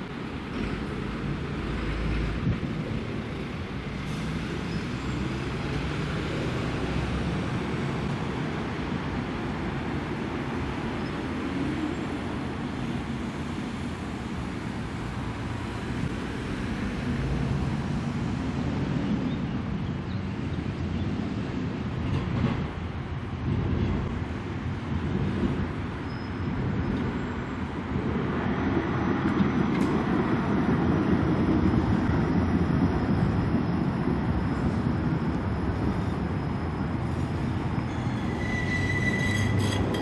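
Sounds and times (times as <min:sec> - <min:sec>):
tram wheels rumbling on rails: 0:00.0 - 0:40.0.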